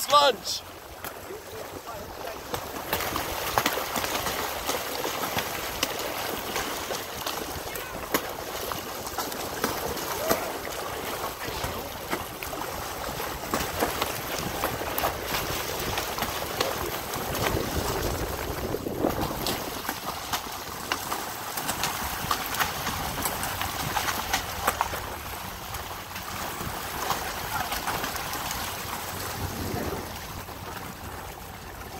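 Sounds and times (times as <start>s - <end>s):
seawater sloshing against rocks: 0.0s - 31.9s
fish splashing at surface: 0.8s - 31.3s.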